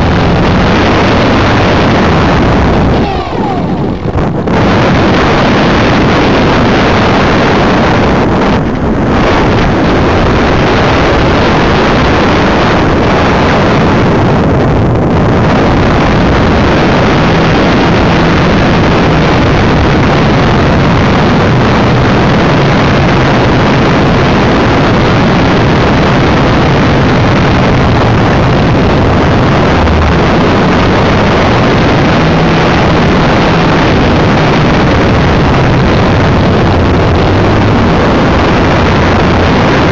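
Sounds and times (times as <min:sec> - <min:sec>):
wind rush on microphone: 0:00.0 - 0:39.9.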